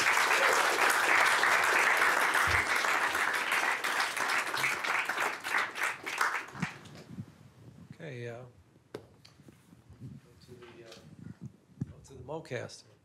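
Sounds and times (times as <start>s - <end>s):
audience applause: 0.0s - 7.0s.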